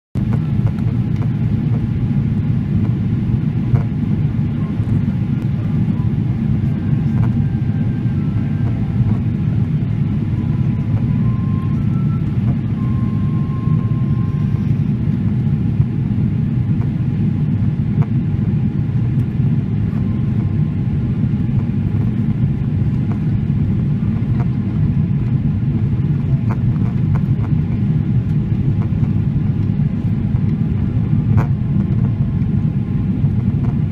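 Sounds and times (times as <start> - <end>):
airliner cabin rumble: 0.2 - 33.9.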